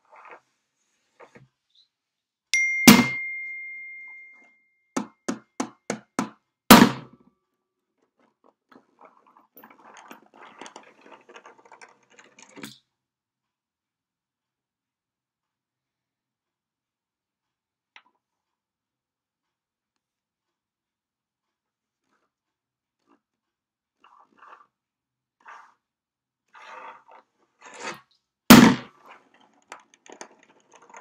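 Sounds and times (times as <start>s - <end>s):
soft rubbing and scratching: 0.0s - 2.3s, 8.0s - 12.6s, 19.4s - 28.2s, 28.9s - 31.0s
metallic ding ringing: 2.6s - 4.6s.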